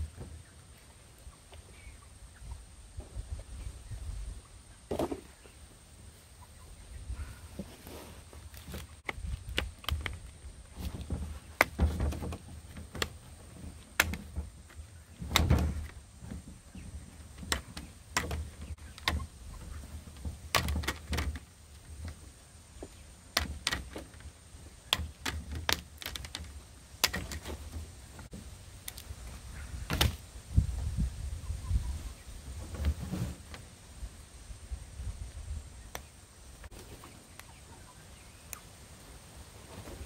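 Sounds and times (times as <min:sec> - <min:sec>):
plastic clicks and snaps: 0:28.8 - 0:29.1.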